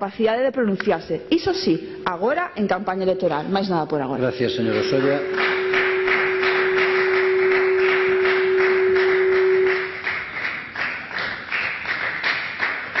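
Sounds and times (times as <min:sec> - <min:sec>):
steady single-pitched tone: 0:01.0 - 0:10.1
crowd clapping: 0:04.5 - 0:13.0.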